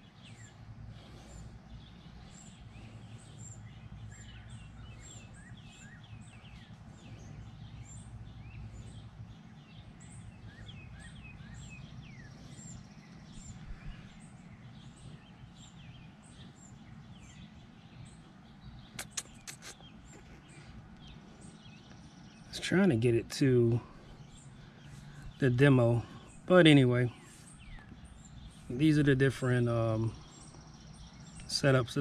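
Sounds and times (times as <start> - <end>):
low outdoor rumble: 0.0 - 32.0
songbirds chirping: 0.0 - 32.0.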